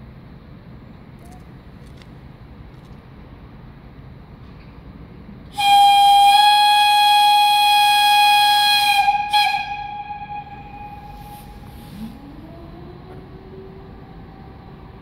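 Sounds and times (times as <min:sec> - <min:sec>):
locomotive whistle blast: 0:05.5 - 0:12.2.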